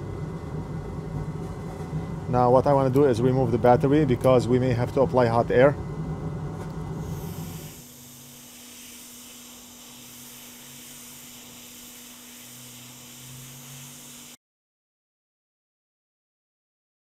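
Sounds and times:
low hum: 0.0 - 14.3
hot air blowing hiss: 7.0 - 14.4.

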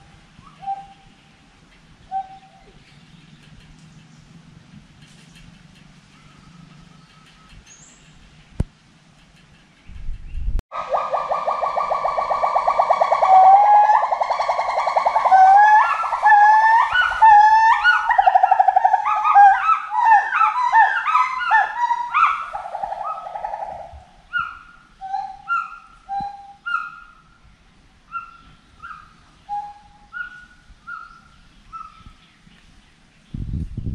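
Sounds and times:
primate calling: 0.0 - 1.1, 10.7 - 27.3.

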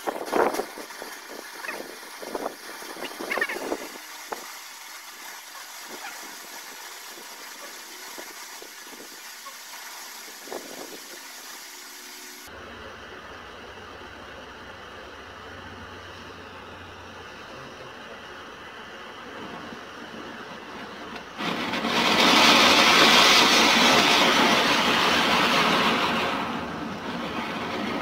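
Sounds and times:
gas torch hissing: 0.0 - 12.5.

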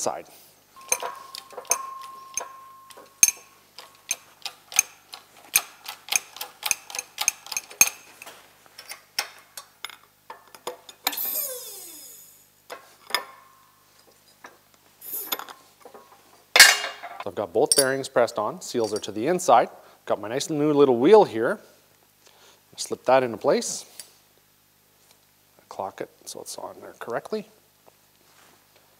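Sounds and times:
metallic ring: 0.8 - 5.0
hydraulic press clicking and clanking: 0.8 - 12.0.

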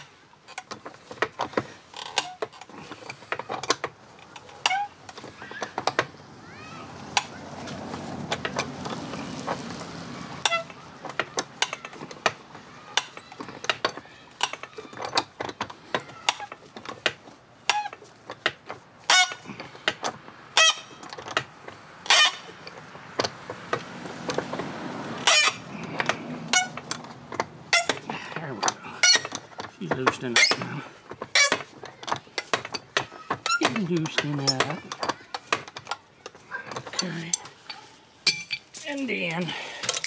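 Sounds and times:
screw squeaking: 0.5 - 6.1, 10.4 - 12.4, 13.0 - 21.4, 25.2 - 38.6
wrench metal clicks and knocks: 25.2 - 38.8.

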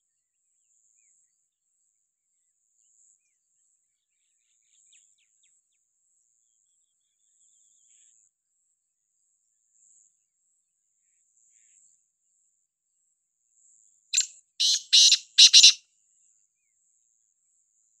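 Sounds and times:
francolin calling: 14.2 - 15.8.

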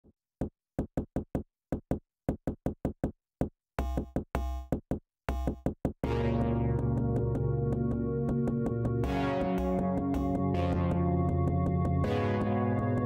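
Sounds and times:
bass-heavy chords: 6.0 - 13.0.

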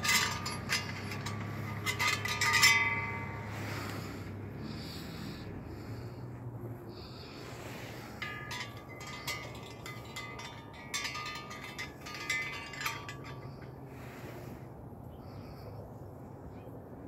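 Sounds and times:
wind chime tinkling: 7.6 - 13.8.

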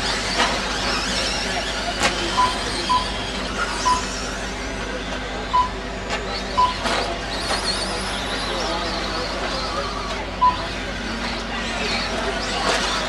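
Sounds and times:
electric motors whining: 0.0 - 13.0
short electronic beeps: 2.3 - 4.3, 5.5 - 5.9, 6.5 - 7.0, 10.4 - 10.8.

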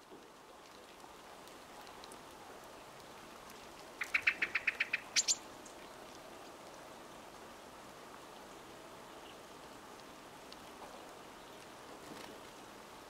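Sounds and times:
woodpecker calling: 4.0 - 5.4.

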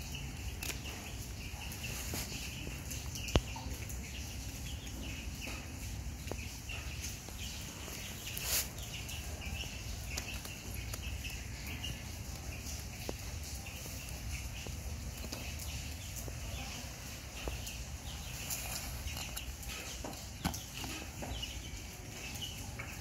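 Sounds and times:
faint bird chirping: 0.0 - 23.0
rustle on a blanket: 8.0 - 9.0.

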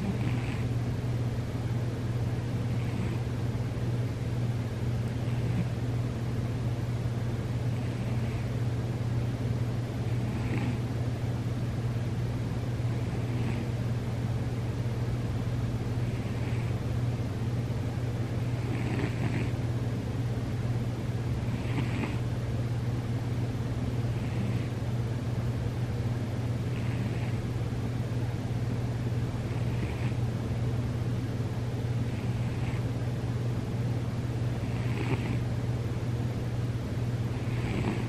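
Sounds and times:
cat snoring softly: 0.0 - 0.8, 2.7 - 3.3, 5.2 - 5.8, 7.7 - 8.5, 10.1 - 10.9, 12.9 - 13.8, 16.0 - 16.8, 18.4 - 19.6, 21.3 - 22.2, 24.1 - 24.8, 26.6 - 27.5, 29.4 - 30.2, 32.1 - 32.9, 34.6 - 35.5, 37.3 - 38.0
steady low hum: 0.0 - 38.0.

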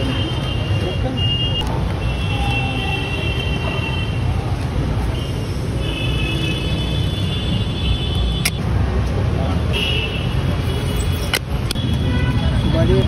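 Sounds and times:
street traffic rumble: 0.0 - 13.0
sharp click: 8.4 - 8.6.

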